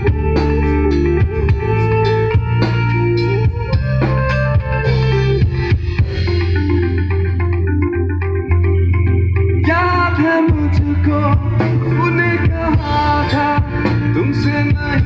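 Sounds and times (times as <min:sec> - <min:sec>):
bass guitar: 0:00.0 - 0:15.0
drum kit: 0:00.0 - 0:15.0
electric guitars: 0:00.0 - 0:15.0.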